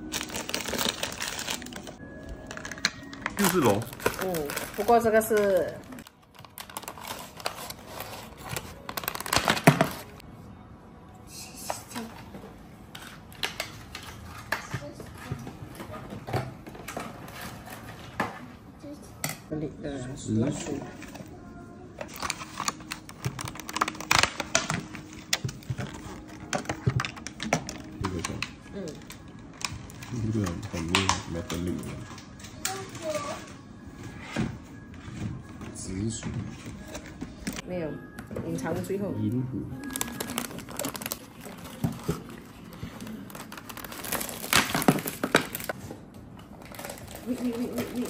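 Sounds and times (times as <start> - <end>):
plastic packaging crinkling: 0.0 - 10.2, 22.0 - 32.4, 39.8 - 45.8, 46.4 - 48.0.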